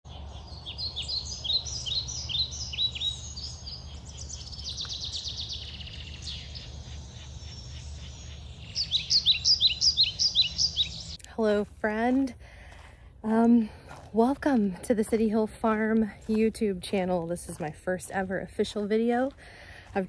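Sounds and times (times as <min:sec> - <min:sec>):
birds chirping: 0:00.0 - 0:11.2
bird trilling: 0:00.3 - 0:11.2.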